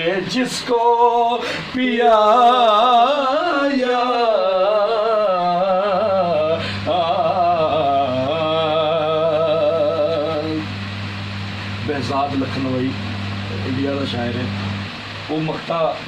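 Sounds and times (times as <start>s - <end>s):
man singing: 0.0s - 10.7s
singer breath: 1.4s - 1.8s, 6.6s - 6.9s.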